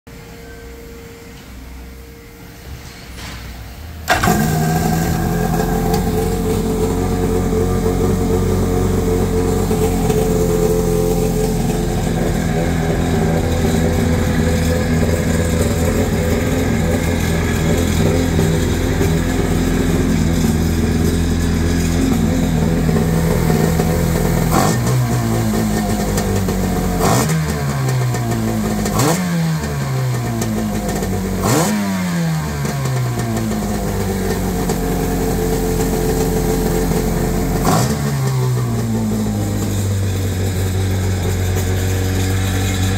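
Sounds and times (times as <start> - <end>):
jet ski engine idling and revving: 4.1 - 42.9.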